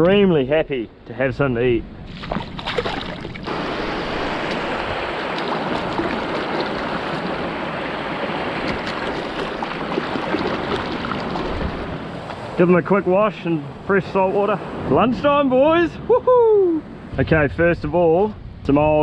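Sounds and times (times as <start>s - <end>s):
water splashing in rock pool: 2.1s - 12.2s.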